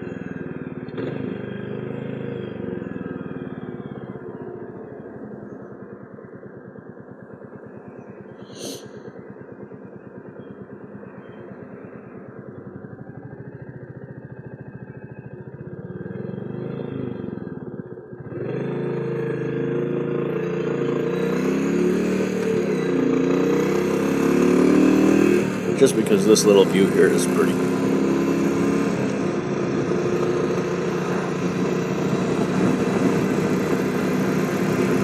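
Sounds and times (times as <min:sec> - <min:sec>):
motorcycle engine running: 0:00.0 - 0:35.0.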